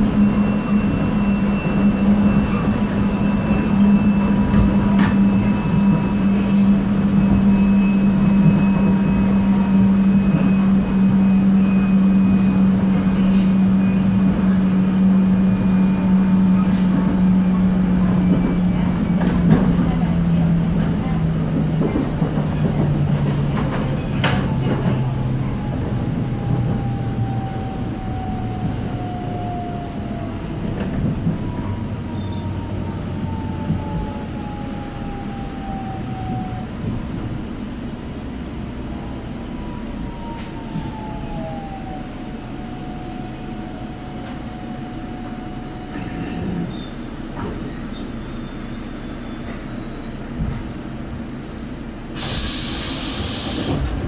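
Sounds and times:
train wheels rumbling: 0:00.0 - 0:54.0
hiss of air: 0:52.2 - 0:53.8.

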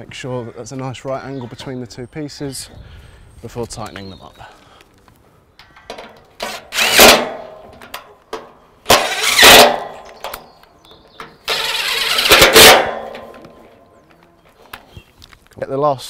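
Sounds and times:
impact driver tightening bolts: 0:05.6 - 0:10.5, 0:11.2 - 0:13.6.

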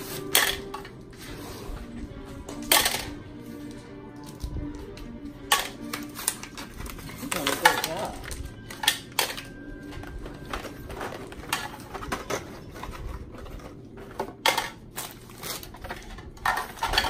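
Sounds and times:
plastic hair clips clattering into bins: 0:00.1 - 0:01.0, 0:02.5 - 0:17.0
plastic packaging crinkling: 0:05.8 - 0:17.0.

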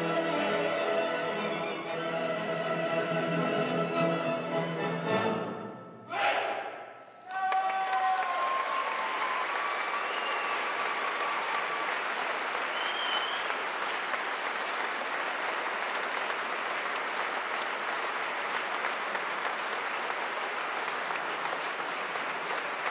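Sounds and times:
audience applauding: 0:07.3 - 0:22.9.

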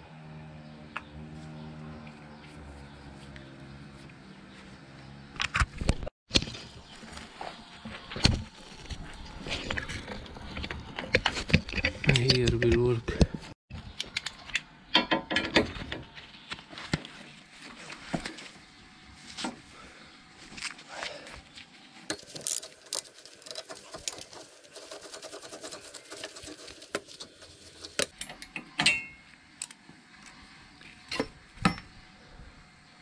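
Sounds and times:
rapid clicking: 0:22.4 - 0:28.1.

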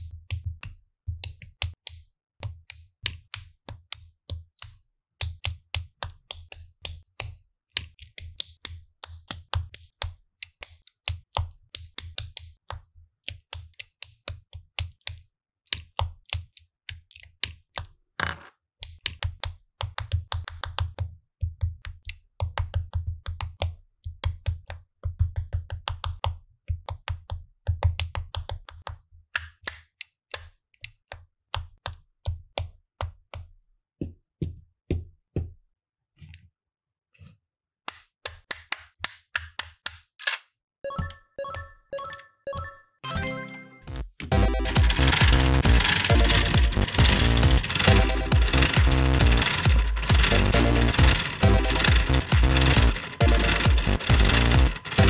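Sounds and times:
plastic bricks clicking together: 0:44.6 - 0:55.0.

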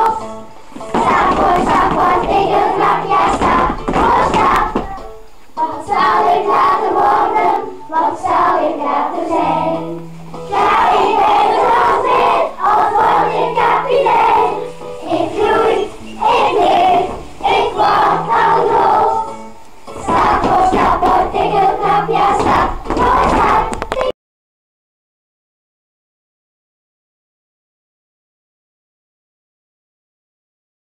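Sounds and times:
young children singing: 0:00.0 - 0:24.1.

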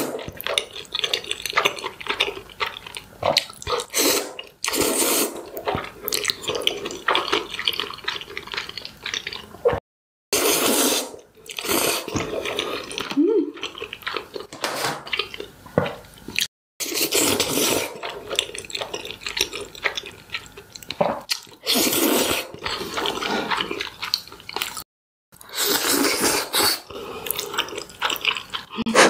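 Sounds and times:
smacking chews: 0:00.0 - 0:04.8, 0:05.5 - 0:09.8, 0:22.5 - 0:24.8, 0:27.2 - 0:28.9
noodle slurping: 0:00.0 - 0:09.8, 0:10.4 - 0:13.0, 0:21.6 - 0:23.9, 0:25.4 - 0:29.0.

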